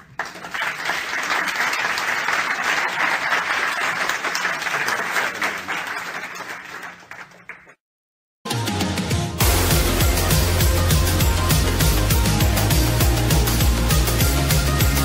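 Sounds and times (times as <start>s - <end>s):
audience clapping: 0.0s - 7.8s.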